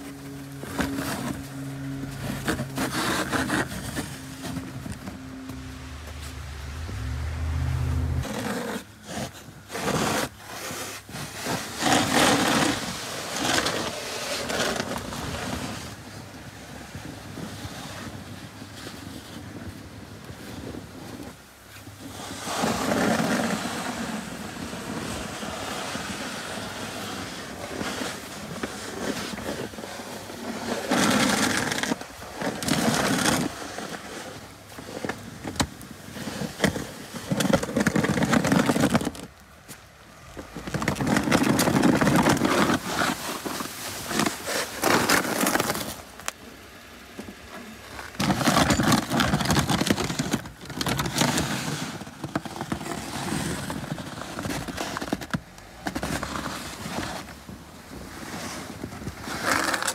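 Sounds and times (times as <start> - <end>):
vehicle engine driving: 0.0 - 9.7
plow blade scraping driveway: 0.0 - 59.9.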